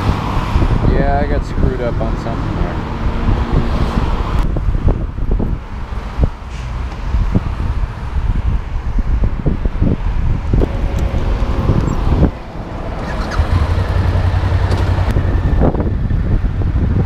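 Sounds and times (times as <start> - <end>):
wind rumble on microphone: 0.0 - 17.0
motorcycle engine running: 10.6 - 17.0.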